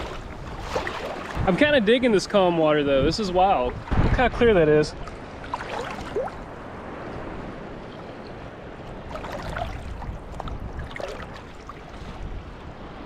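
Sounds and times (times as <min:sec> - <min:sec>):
seawater lapping around legs: 0:00.0 - 0:01.6, 0:05.0 - 0:12.4.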